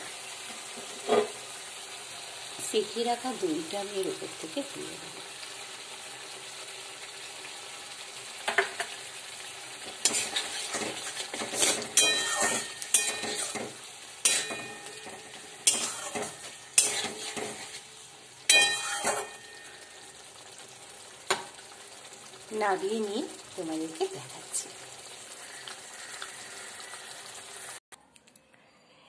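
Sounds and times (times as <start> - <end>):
curry sizzling: 0.0 - 27.8
metal spatula scraping pan: 0.8 - 1.4, 9.8 - 19.9.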